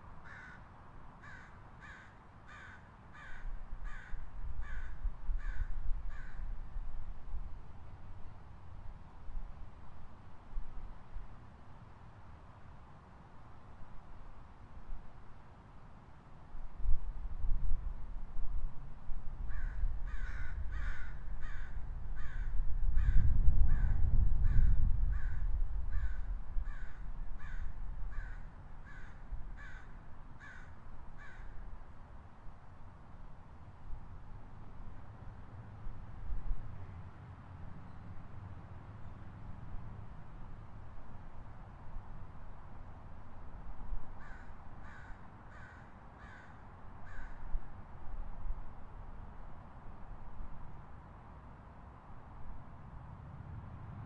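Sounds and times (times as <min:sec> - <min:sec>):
low city rumble: 0:00.0 - 0:54.0
crow cawing: 0:00.2 - 0:06.4, 0:19.5 - 0:31.6, 0:44.2 - 0:47.4.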